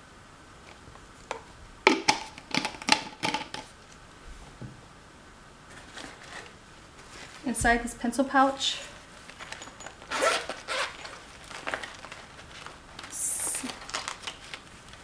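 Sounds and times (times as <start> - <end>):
plastic items clicking and clattering: 1.9 - 3.7, 9.3 - 15.0.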